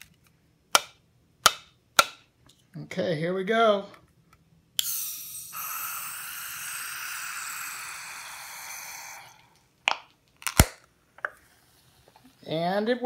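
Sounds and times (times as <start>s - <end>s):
gas hissing out of a can: 4.8s - 9.6s.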